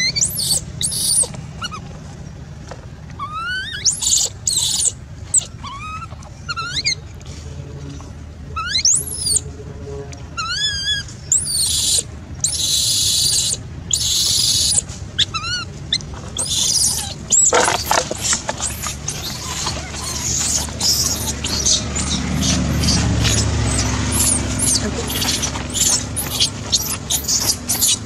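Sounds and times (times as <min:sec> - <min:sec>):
baby monkey crying: 0:00.0 - 0:01.8, 0:03.2 - 0:07.0, 0:08.6 - 0:09.4, 0:10.4 - 0:28.0.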